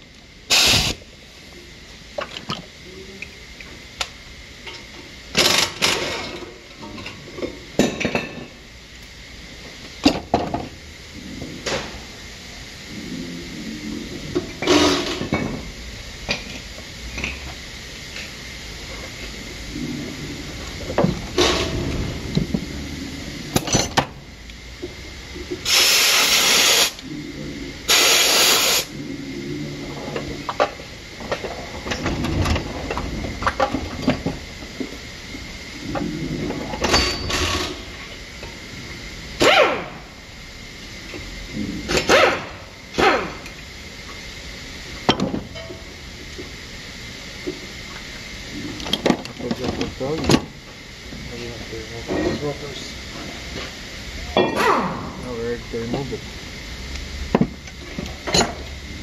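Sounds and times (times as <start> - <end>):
loud hissing bursts: 0.5 - 1.1, 25.6 - 29.8.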